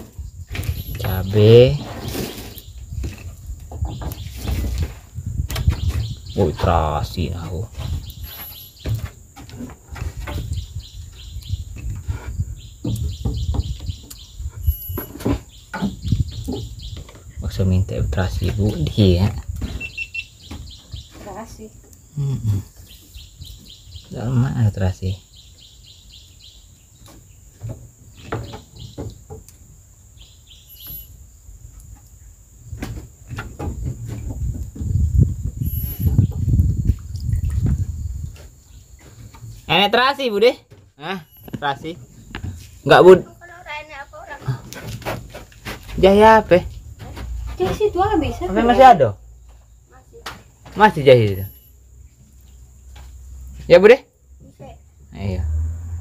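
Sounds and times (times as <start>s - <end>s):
birds chirping: 0.0s - 56.0s
knocks and thuds: 3.0s - 6.2s, 7.7s - 10.6s, 12.8s - 14.1s, 14.9s - 17.2s, 27.0s - 29.4s, 32.7s - 36.6s, 44.4s - 48.3s.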